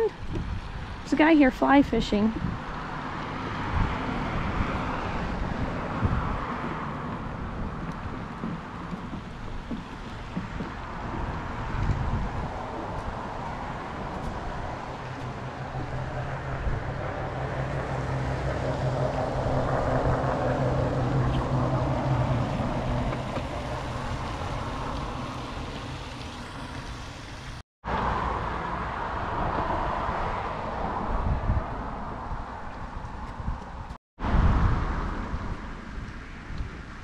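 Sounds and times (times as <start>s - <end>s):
outdoor noise: 0.0s - 37.0s
vehicle engine passing by: 10.8s - 32.6s.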